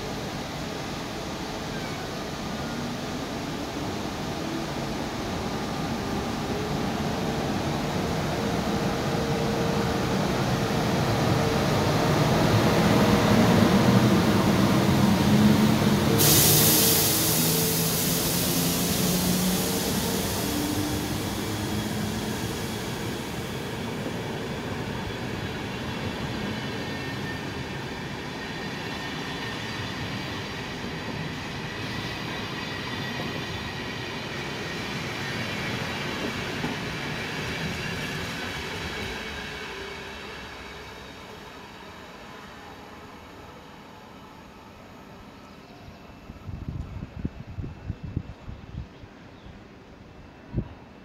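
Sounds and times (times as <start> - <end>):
train running along track: 0.0 - 51.0
bright hiss: 16.0 - 24.0.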